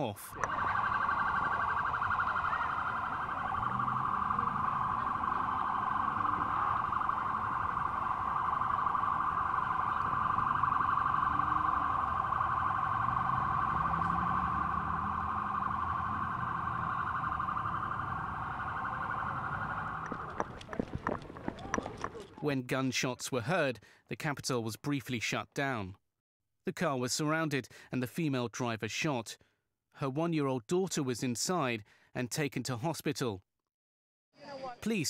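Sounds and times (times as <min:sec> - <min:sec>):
warbling electronic siren: 0:00.3 - 0:22.2.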